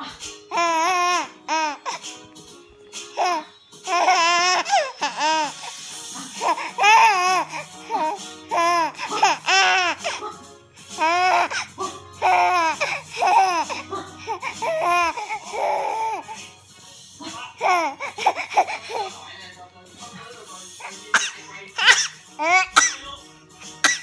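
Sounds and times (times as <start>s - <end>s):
soft music: 0.0s - 24.0s
baby laughing in squeals: 0.5s - 2.3s, 3.1s - 10.2s, 10.9s - 16.4s, 17.6s - 19.1s, 21.1s - 23.0s, 23.8s - 24.0s.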